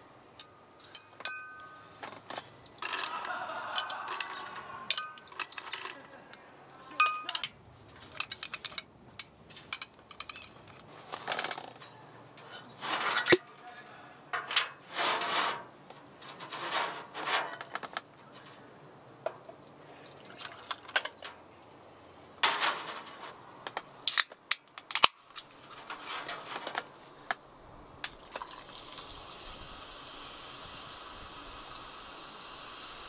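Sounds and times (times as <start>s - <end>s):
steady hiss: 0.0s - 20.0s, 25.9s - 33.0s
cooking gear clattering: 0.4s - 13.7s, 14.4s - 18.6s, 20.4s - 21.4s.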